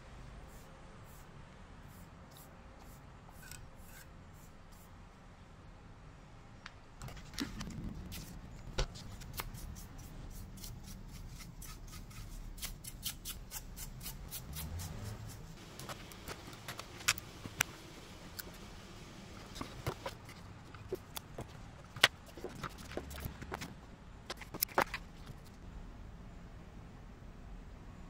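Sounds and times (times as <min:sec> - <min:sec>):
soft brush on circuit board: 0:00.2 - 0:05.1, 0:14.2 - 0:25.6.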